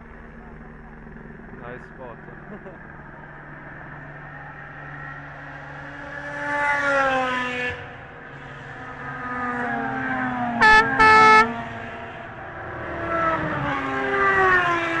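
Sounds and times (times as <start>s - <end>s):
racing car engines passing: 2.5s - 15.0s
air horn blasts: 10.6s - 11.6s.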